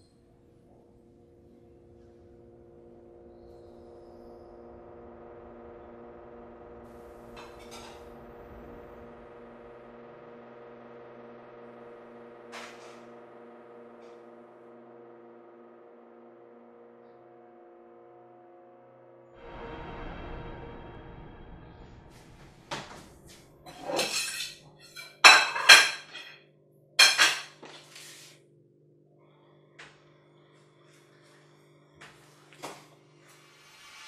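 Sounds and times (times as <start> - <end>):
synth pad drone chord: 1.3 - 23.7.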